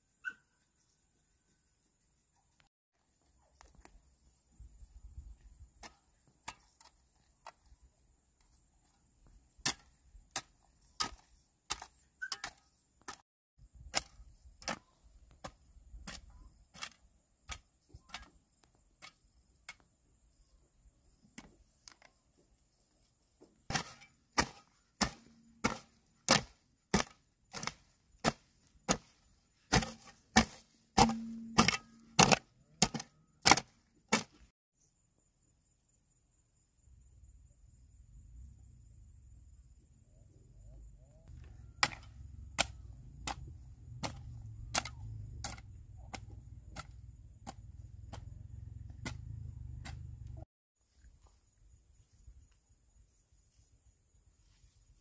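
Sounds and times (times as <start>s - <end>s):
sharp chopping strikes: 23.7s - 29.1s, 29.7s - 34.5s, 41.8s - 48.3s.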